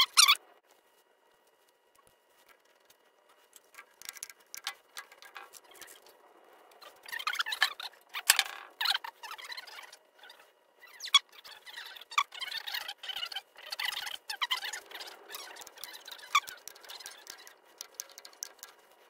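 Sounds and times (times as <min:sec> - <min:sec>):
small metal parts clicking: 0:03.5 - 0:06.1, 0:13.8 - 0:18.8.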